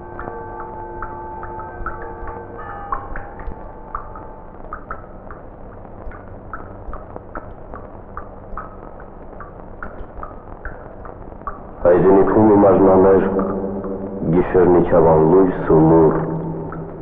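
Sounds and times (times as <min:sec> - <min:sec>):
sustained music tones: 0:00.0 - 0:05.5, 0:11.4 - 0:17.0
film soundtrack hiss: 0:00.0 - 0:17.0
water dripping: 0:00.0 - 0:17.0.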